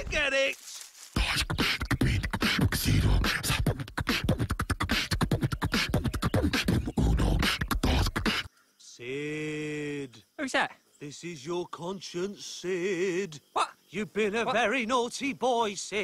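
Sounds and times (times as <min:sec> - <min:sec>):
person beatboxing: 0:01.2 - 0:08.5.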